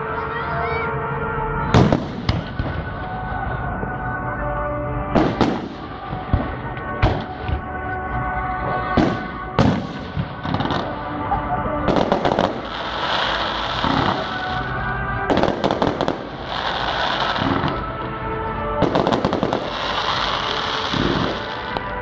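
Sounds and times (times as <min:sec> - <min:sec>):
music: 0:00.0 - 0:22.0
firework bangs: 0:01.7 - 0:03.4, 0:05.1 - 0:07.7, 0:08.6 - 0:18.1, 0:18.8 - 0:22.0.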